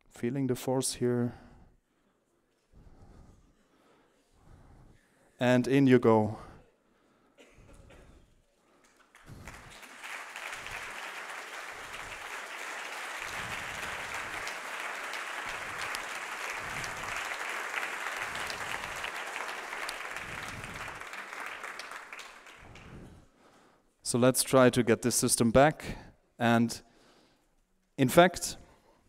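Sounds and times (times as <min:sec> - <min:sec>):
audience applauding: 0:08.8 - 0:23.1.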